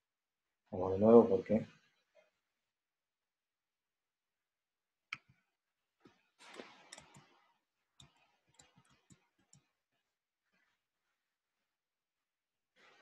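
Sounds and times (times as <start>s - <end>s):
computer mouse clicks: 6.4s - 9.8s.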